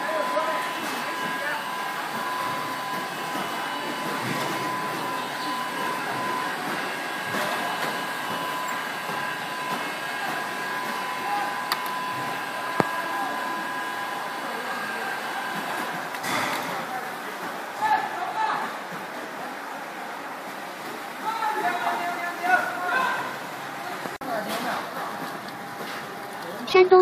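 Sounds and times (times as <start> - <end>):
machine whir: 0.0 - 17.8.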